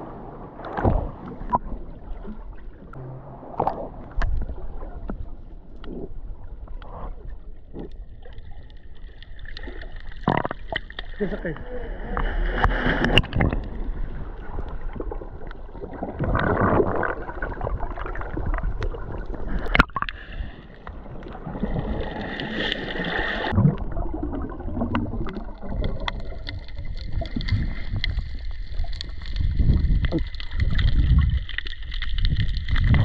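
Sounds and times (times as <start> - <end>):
muffled underwater water rushing: 0.0 - 33.0.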